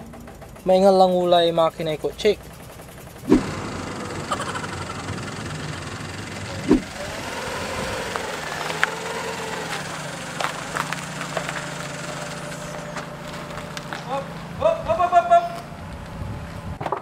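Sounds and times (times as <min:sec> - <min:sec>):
car engine knocking: 0:00.0 - 0:15.9
thump: 0:06.6 - 0:06.9.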